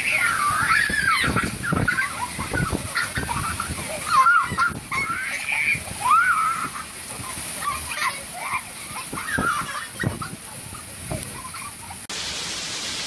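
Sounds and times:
wind gusting on microphone: 0.0 - 7.6, 9.0 - 11.4
children shrieking and laughing: 0.0 - 12.1.

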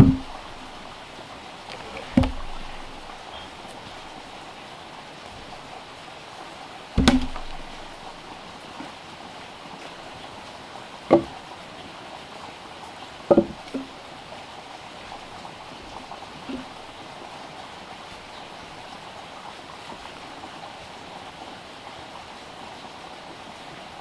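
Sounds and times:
heavy log knocking on logs: 0.0 - 0.8, 1.8 - 3.2, 7.0 - 8.1, 11.1 - 11.4, 13.3 - 13.9, 16.5 - 16.8
steady background hiss: 0.0 - 24.0.

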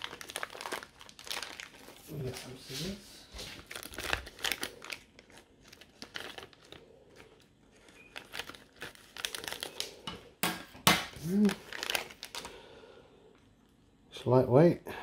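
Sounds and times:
plastic bag crinkling: 0.0 - 10.1, 11.1 - 12.8.

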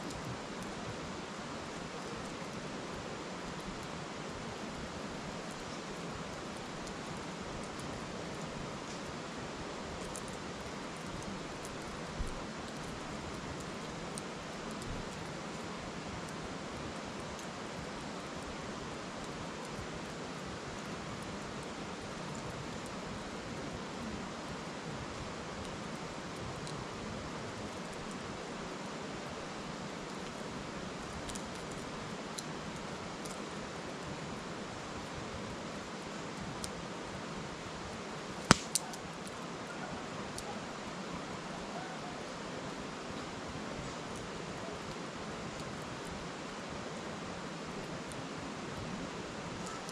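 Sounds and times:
wood fire crackling: 0.0 - 49.9
river murmuring: 35.6 - 49.9
burning logs popping: 38.3 - 39.3.

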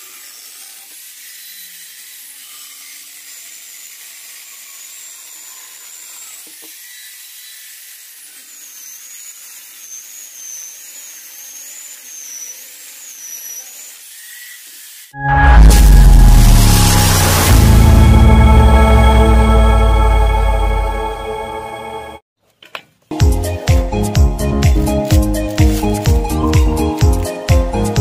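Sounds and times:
chainsaw chain cutting log: 25.0 - 27.4.

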